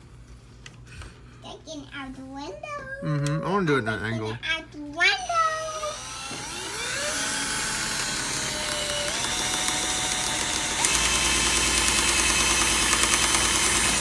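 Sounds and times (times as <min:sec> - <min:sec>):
cordless drill driving a screw: 0:05.8 - 0:14.0.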